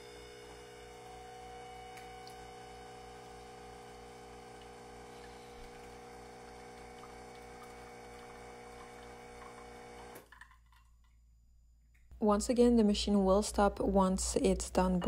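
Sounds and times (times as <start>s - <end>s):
espresso machine pump humming: 0.0s - 10.2s.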